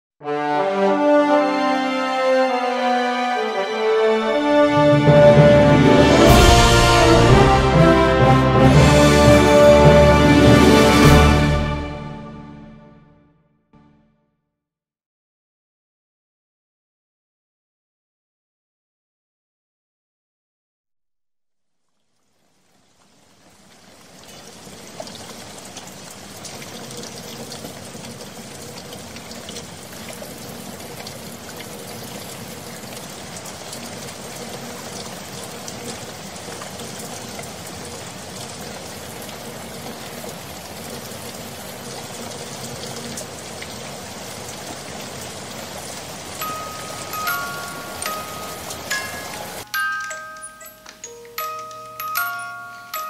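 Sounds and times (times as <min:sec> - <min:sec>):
steady rain falling: 0:02.4 - 0:12.4, 0:21.8 - 0:53.0
chime-like music notes: 0:46.4 - 0:53.0.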